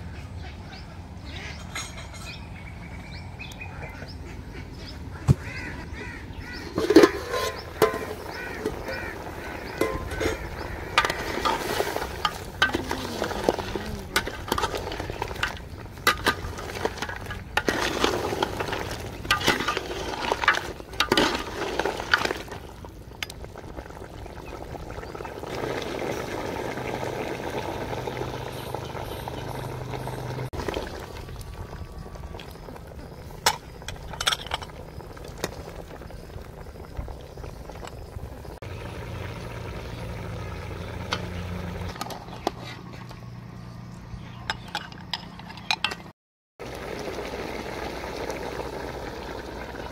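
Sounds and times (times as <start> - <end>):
stew bubbling: 5.4 - 42.0, 46.6 - 49.9
metal ladle clinking on pot: 6.8 - 8.8, 9.8 - 13.0.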